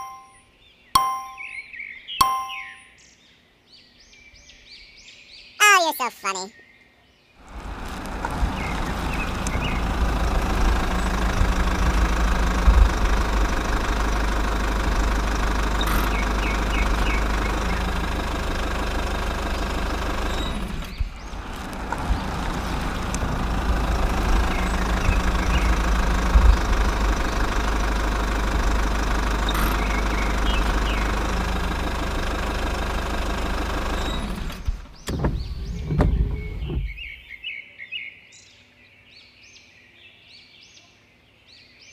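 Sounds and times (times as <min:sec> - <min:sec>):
tractor engine running: 0:07.4 - 0:37.3.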